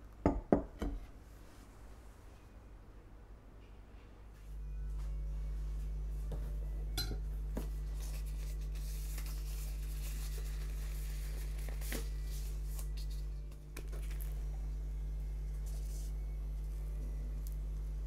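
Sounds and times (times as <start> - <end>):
low hum: 1.8 - 18.0
crinkly rustling: 7.6 - 14.5.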